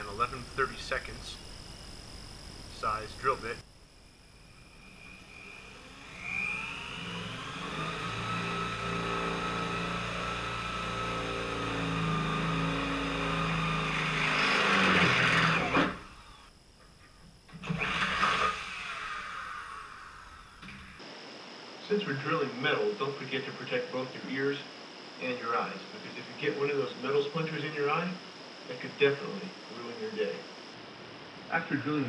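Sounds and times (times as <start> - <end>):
electric drill drilling metal: 4.4 - 16.6, 17.5 - 21.0.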